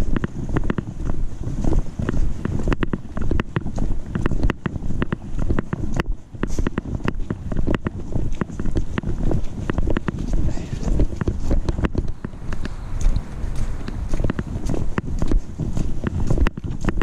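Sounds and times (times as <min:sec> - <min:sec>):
camera handling rumble: 0:00.0 - 0:17.0
sharp clicks and knocks: 0:00.0 - 0:17.0
wind on microphone: 0:00.0 - 0:17.0.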